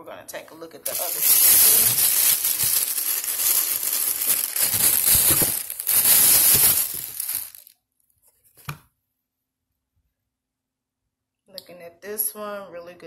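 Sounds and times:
plastic bag crinkling: 0.8 - 7.7.

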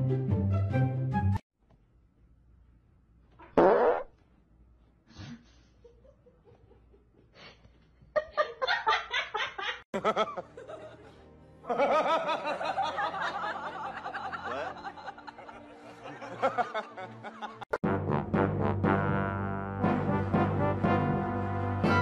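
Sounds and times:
music: 0.0 - 1.4, 10.0 - 22.0.

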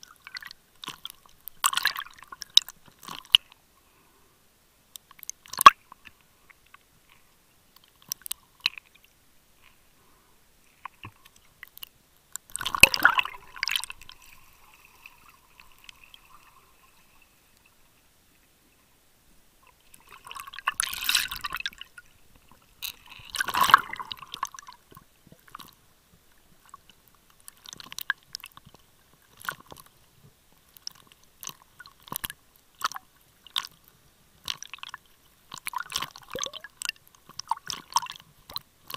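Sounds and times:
underwater clicks and crackles: 0.0 - 3.6, 4.9 - 9.9, 10.6 - 18.5, 19.6 - 38.9
bubbling gurgling bursts: 36.3 - 36.7.

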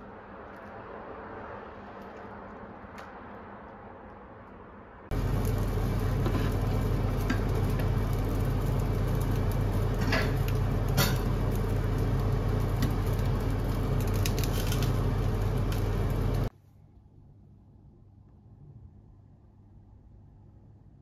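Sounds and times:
steady low hum: 0.0 - 21.0
noodles sizzling in frying pan: 5.1 - 16.5.

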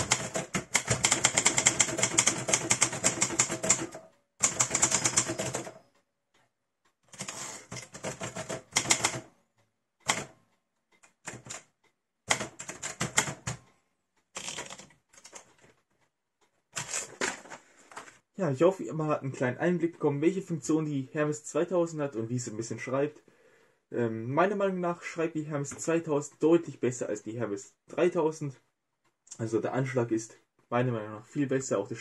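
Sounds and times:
typewriter keystrokes clacking: 0.0 - 5.8, 7.1 - 9.3, 10.0 - 10.4, 12.3 - 13.6, 14.4 - 15.6.

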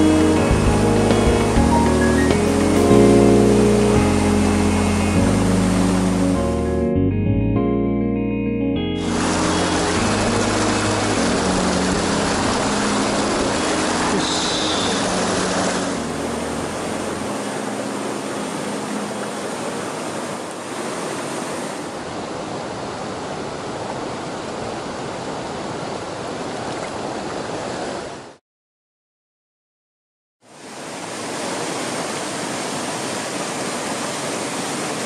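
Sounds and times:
stream rushing over rocks: 9.0 - 28.4, 30.5 - 35.0.

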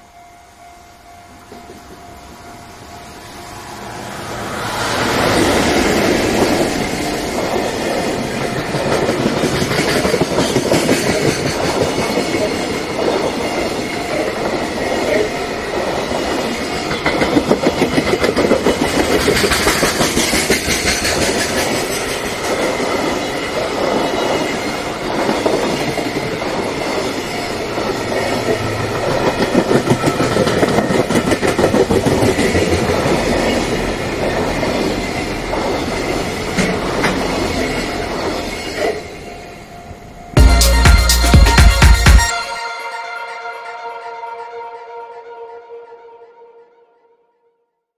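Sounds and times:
freight train rumbling past: 0.0 - 42.3
wheels clacking over rail joints: 4.2 - 15.4, 16.1 - 39.3.

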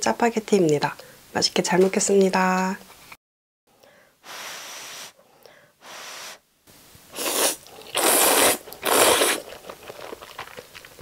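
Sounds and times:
person slurping noodles: 7.1 - 9.6.

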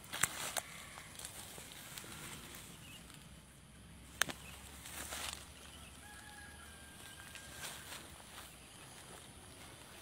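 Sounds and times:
rustling of weeds and grass: 0.0 - 10.0.

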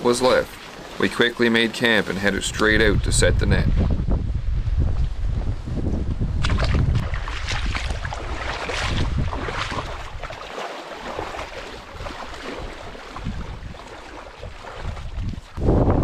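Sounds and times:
water splashing as people wade: 0.0 - 2.4, 6.4 - 15.7
wind buffeting microphone: 2.2 - 10.4, 11.0 - 16.0.

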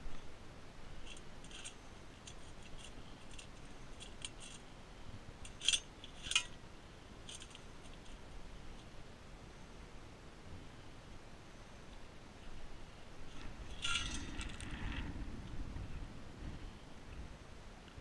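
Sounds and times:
metal digging tool scraping stones: 1.0 - 4.7, 5.5 - 6.6, 7.2 - 8.2, 13.3 - 14.8.

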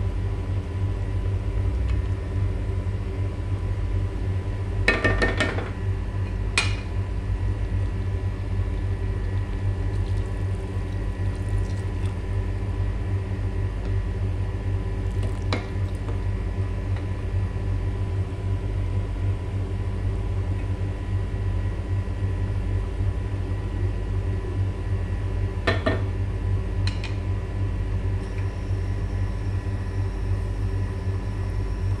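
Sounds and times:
low rumble and hum: 0.0 - 32.0
pot simmering: 7.6 - 13.9, 14.9 - 16.5.

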